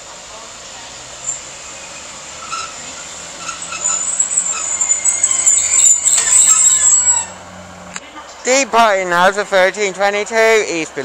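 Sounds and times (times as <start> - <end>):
train diesel engine: 0.0 - 11.0
train wheels squealing: 1.2 - 7.5.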